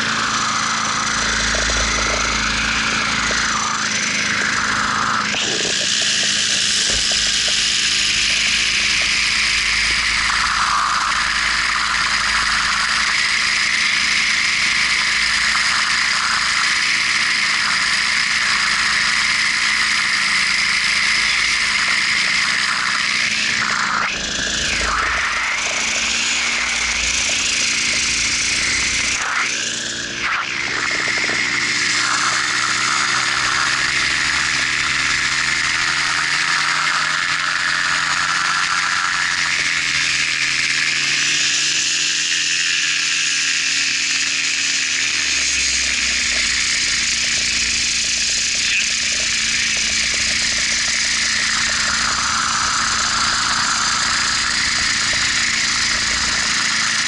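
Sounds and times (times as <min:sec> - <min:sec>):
paramotor engine and propeller: 0:00.0 - 0:57.0.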